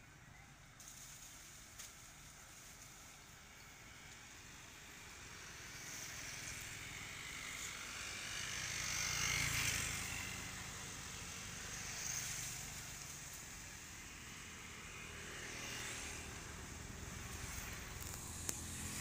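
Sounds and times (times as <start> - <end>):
vehicle engine passing by: 3.8 - 19.0.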